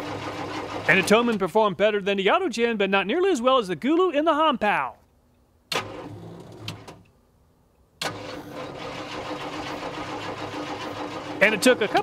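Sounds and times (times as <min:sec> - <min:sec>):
truck engine cranking: 0:00.0 - 0:01.4, 0:05.7 - 0:07.1, 0:08.0 - 0:12.0
truck engine running: 0:08.6 - 0:12.0.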